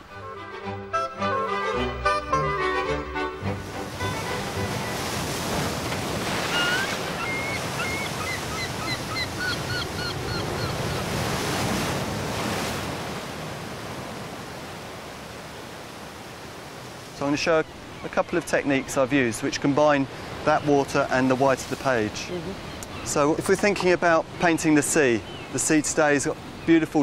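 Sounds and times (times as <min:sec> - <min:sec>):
sea surf on rocks: 0:03.4 - 0:27.0
short bird calls: 0:06.4 - 0:11.0.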